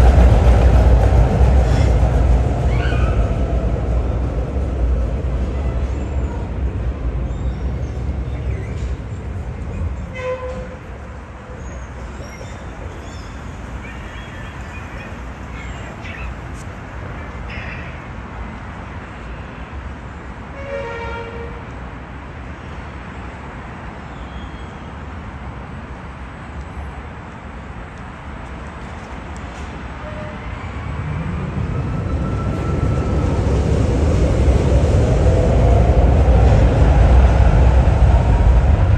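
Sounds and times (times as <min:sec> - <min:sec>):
low rumble of traffic and trams: 0:00.0 - 0:38.9
short horn toots: 0:10.1 - 0:10.8.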